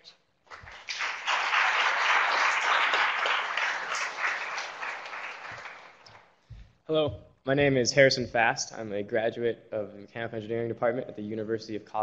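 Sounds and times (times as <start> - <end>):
audience applauding: 0.5 - 6.3.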